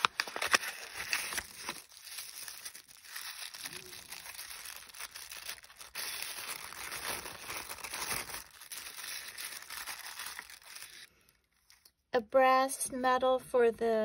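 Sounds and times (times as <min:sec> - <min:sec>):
tissue paper crinkling: 0:00.0 - 0:11.8.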